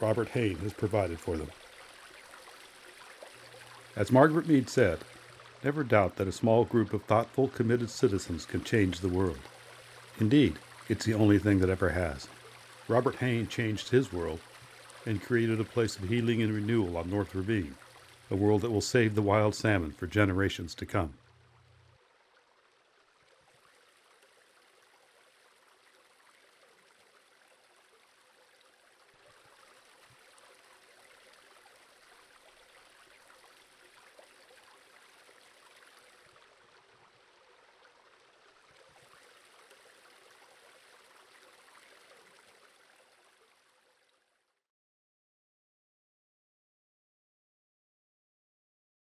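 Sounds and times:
creek water over rocks: 0:00.0 - 0:44.6.

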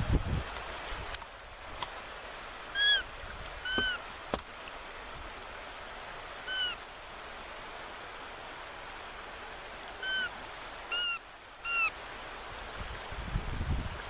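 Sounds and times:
bird calling: 0:02.7 - 0:04.0, 0:06.5 - 0:06.8, 0:10.0 - 0:12.0.

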